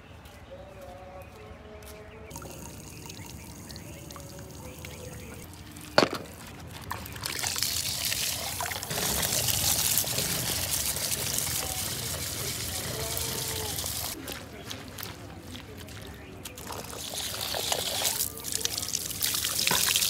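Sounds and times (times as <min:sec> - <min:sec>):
liquid pouring: 0:02.3 - 0:14.2, 0:16.6 - 0:20.0.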